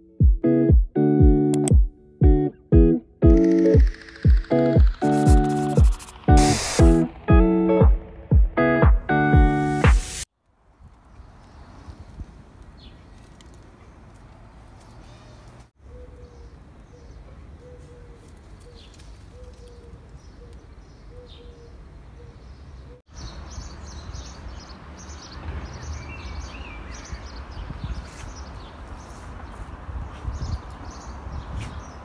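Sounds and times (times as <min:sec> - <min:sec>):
small birds chirping: 0:10.9 - 0:32.0.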